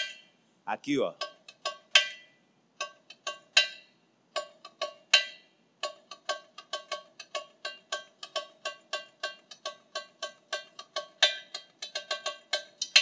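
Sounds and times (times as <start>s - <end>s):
tamborim struck with a stick: 1.2s - 13.0s.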